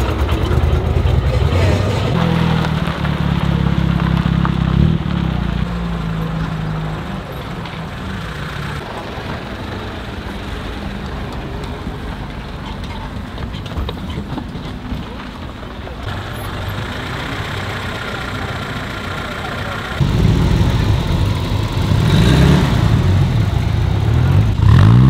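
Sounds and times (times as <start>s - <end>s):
car engine driving off: 0.0s - 25.0s
distant vehicles: 0.0s - 25.0s.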